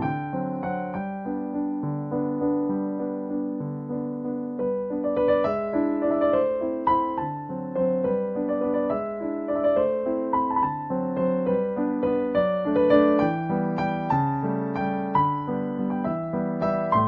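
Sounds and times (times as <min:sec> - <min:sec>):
piano music: 0:00.0 - 0:17.0.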